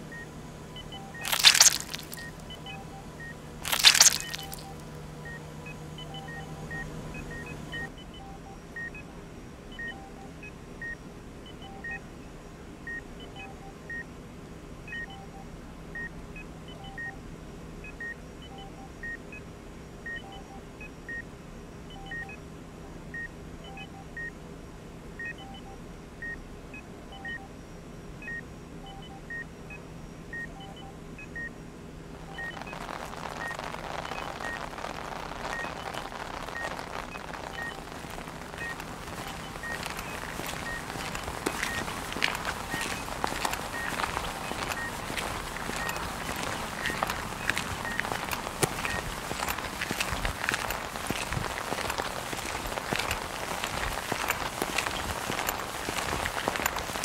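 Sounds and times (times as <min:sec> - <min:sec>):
faint low hum: 0:00.0 - 0:57.0
short high electronic beeps: 0:00.8 - 0:03.0, 0:03.6 - 0:04.8, 0:32.2 - 0:57.0.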